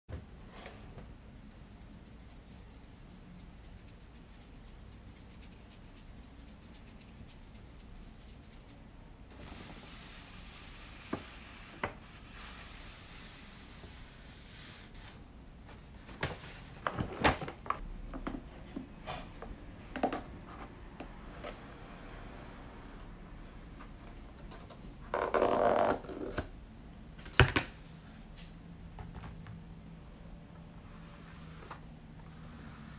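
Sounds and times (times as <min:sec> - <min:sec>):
paper bag rustling: 0:15.7 - 0:17.8.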